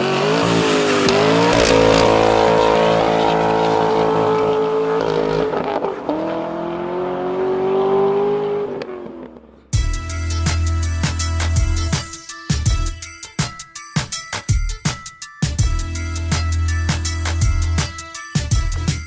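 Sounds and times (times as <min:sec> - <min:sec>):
car engine revving: 0:00.0 - 0:09.7.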